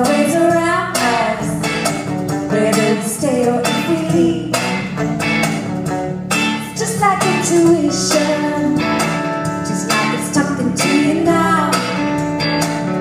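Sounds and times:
woman singing: 0.0 - 1.8, 2.5 - 4.6, 6.6 - 12.0
strummed acoustic guitars: 0.0 - 13.0.

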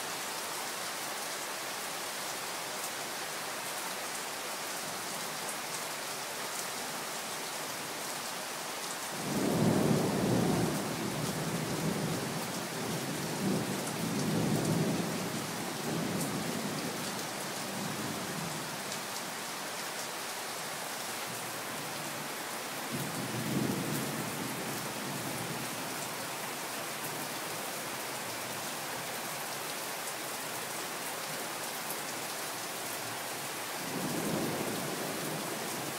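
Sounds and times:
heavy rain pouring: 0.0 - 35.9.

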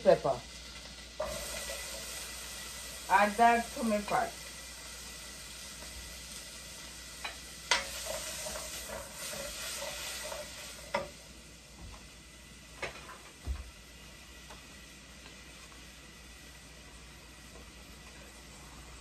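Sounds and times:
vegetables sizzling in butter: 0.0 - 19.0
spatula stirring and scraping: 0.8 - 2.7, 7.2 - 11.1.

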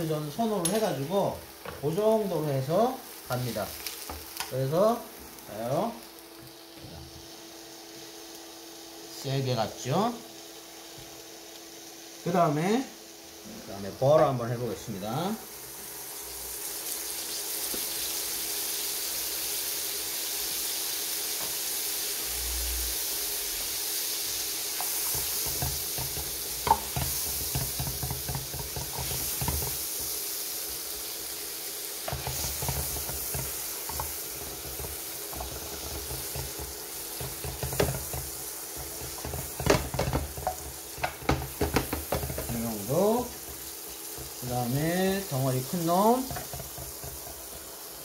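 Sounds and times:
butter sizzling in frying pan: 0.0 - 48.0
knocks and scrapes on pan: 25.0 - 29.8, 32.1 - 42.6, 46.3 - 47.4.

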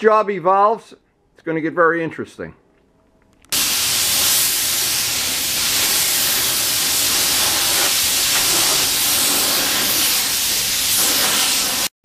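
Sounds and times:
spray gun hissing: 3.5 - 12.0.

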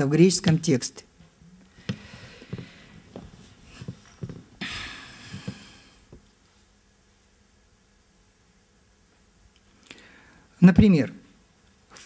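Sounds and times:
soft breathy hiss: 1.6 - 10.6.

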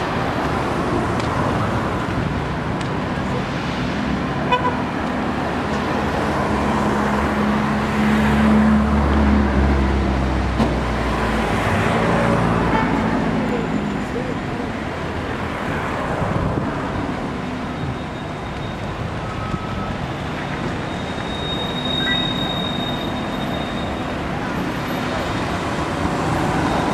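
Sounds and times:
cars passing by: 0.0 - 26.9
short beep: 20.9 - 24.0.

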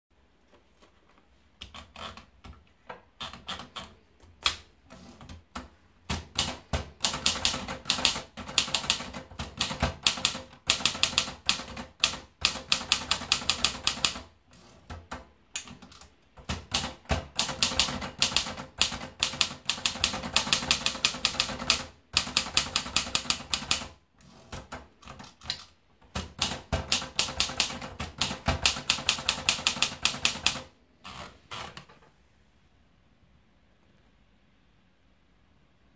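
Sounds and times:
manual typewriter typing: 3.2 - 31.9.

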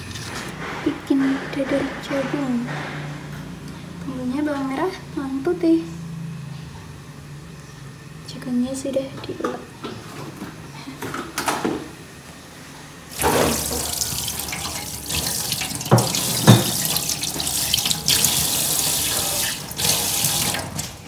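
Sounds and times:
tap running into steel sink: 13.2 - 20.8.

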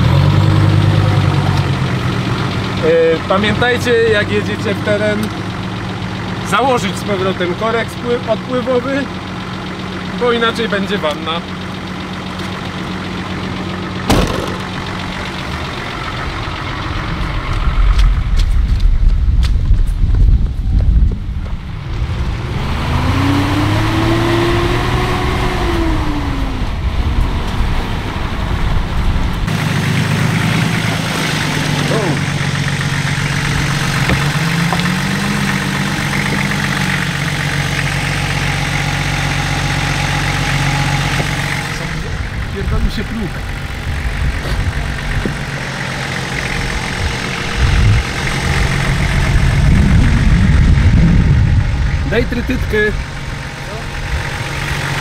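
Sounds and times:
engine idling: 0.0 - 55.0
low rumble: 13.4 - 23.2, 25.6 - 55.0
sharp knock: 14.1 - 14.8.

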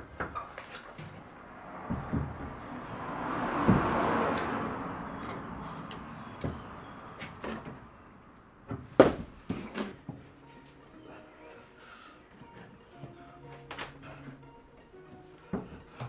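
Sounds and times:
knocks on climbing holds: 8.7 - 9.4.

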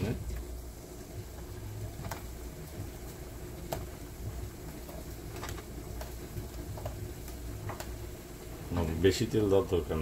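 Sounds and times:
steady low hum: 0.0 - 10.0
soft taps in a frying pan: 1.3 - 2.4, 3.6 - 4.0, 4.7 - 8.0.

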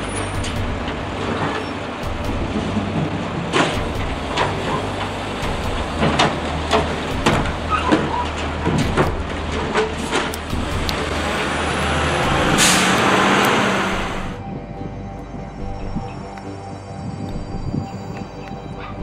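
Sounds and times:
hydraulic arm lifting bin: 0.0 - 14.4
garbage truck diesel engine running: 0.0 - 16.4.

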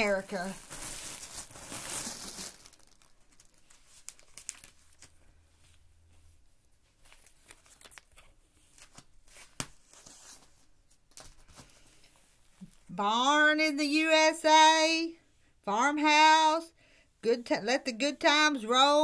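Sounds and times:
plastic wrapping crinkling and tearing: 0.0 - 5.3, 6.9 - 11.9.

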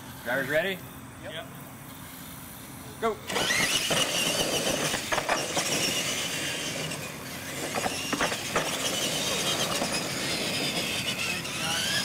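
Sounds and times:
toy truck motors whining: 3.3 - 12.0.

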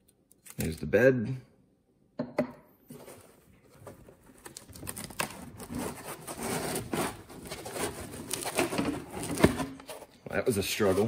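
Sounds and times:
packing foam squeaking and scraping: 4.9 - 9.9, 10.5 - 11.0.

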